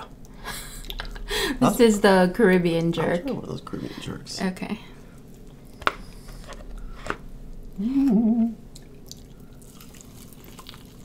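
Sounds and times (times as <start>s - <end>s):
person humming mmm: 7.7s - 8.6s.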